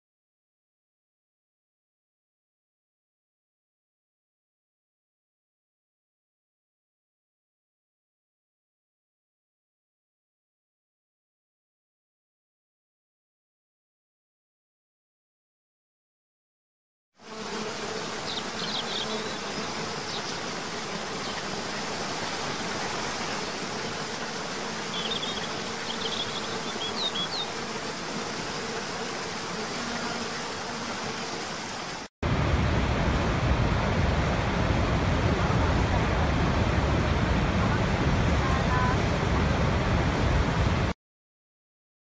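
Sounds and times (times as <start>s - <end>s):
faint insect buzz: 17.2s - 32.1s
deep roar of waterfall: 32.2s - 41.0s.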